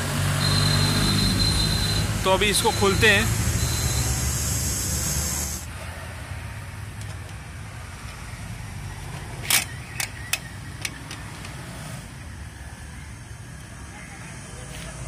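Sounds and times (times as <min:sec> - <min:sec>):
loud steady hiss: 0:01.4 - 0:05.8.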